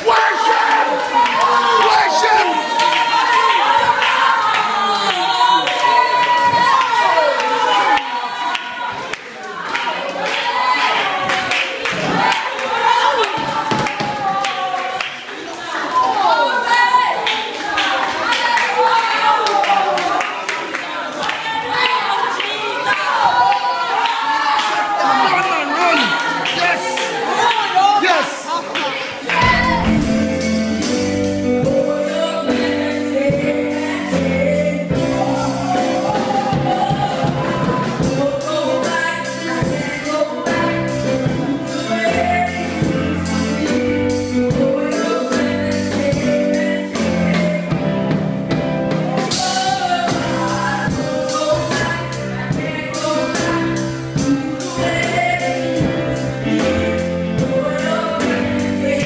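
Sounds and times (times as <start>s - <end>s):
gospel singing: 0.0s - 59.0s
bass line and beat: 29.4s - 31.6s.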